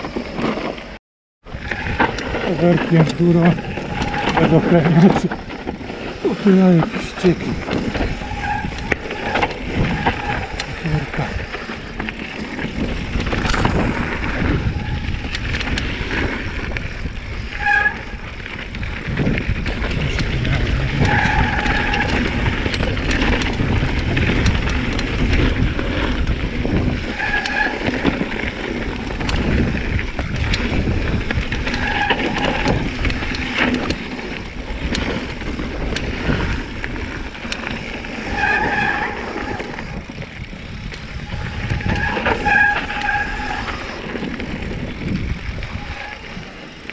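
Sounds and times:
bike rattling over bumps: 0.0 - 46.9
wind on microphone: 1.5 - 46.9
disc brakes squealing: 6.2 - 11.1, 20.6 - 22.4, 27.0 - 28.0, 38.2 - 40.0, 41.2 - 44.3.

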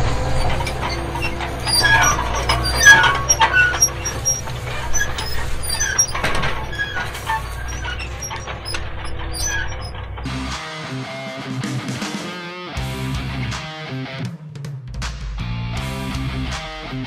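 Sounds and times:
low engine drone: 0.0 - 10.5.

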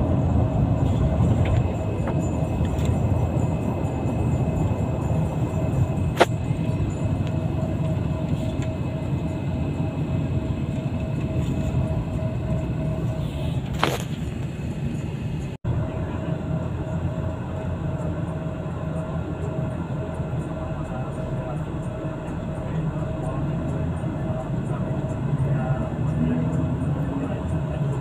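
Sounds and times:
bus engine and road rumble: 0.0 - 28.0.

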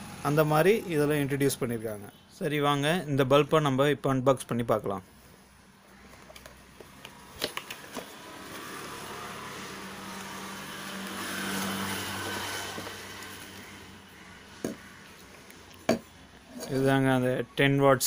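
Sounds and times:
passing motor vehicle: 7.9 - 15.3.

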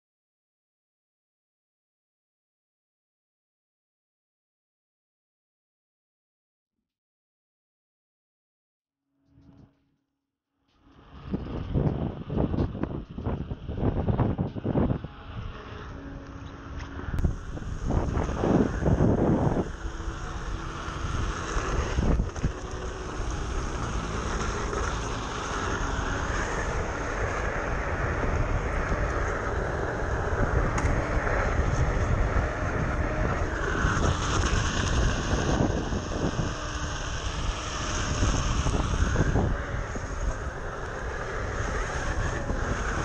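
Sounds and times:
road rumble: 10.8 - 43.0
wind rushing over microphone: 11.0 - 43.0.

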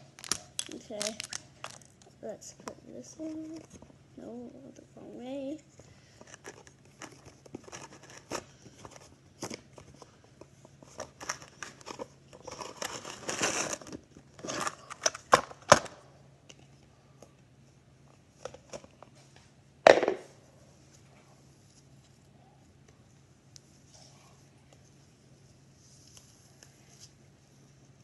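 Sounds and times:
crinkly rustle: 0.1 - 2.2, 5.6 - 15.3.

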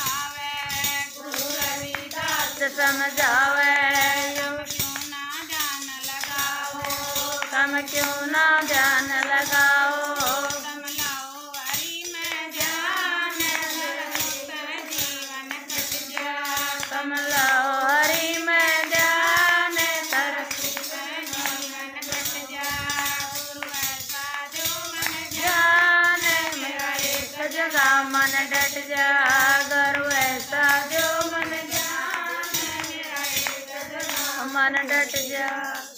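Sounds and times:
woman singing: 0.0 - 35.9.

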